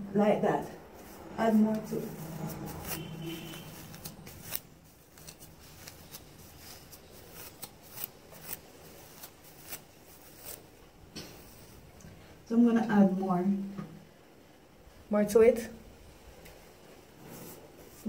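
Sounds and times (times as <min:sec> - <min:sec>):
comb crackling through wet hair: 0:00.7 - 0:12.0.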